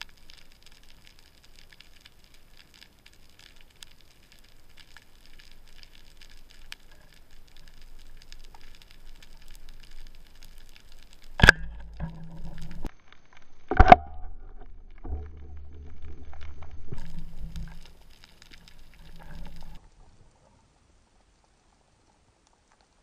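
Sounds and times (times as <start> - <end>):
underwater crackling: 0.0 - 23.0
speargun firing crack: 11.4 - 12.2
low rumble: 14.0 - 20.4.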